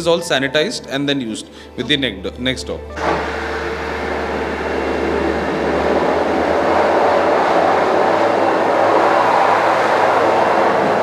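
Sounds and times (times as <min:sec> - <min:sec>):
blow dryer air blast: 0:03.0 - 0:11.0.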